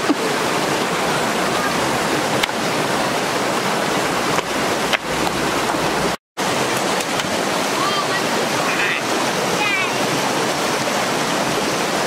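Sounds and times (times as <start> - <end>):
creek rushing over stones: 0.0 - 12.0.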